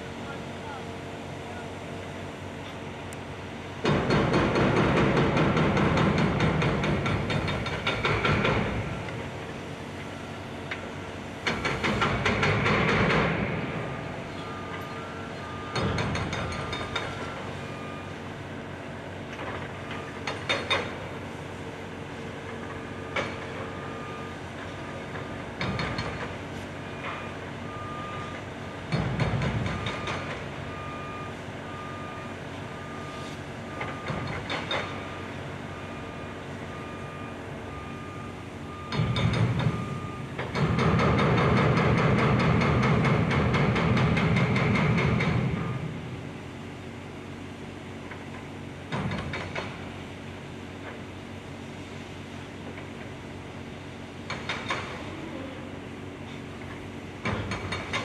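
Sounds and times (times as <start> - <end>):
heavy construction machinery running: 0.0 - 58.0
reversing alarm beeping: 11.6 - 18.7, 22.4 - 26.2, 26.8 - 43.0.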